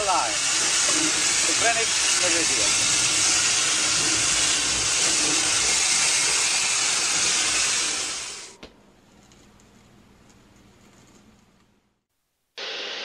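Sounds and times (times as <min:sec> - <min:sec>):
steam engine hissing: 0:00.0 - 0:08.6.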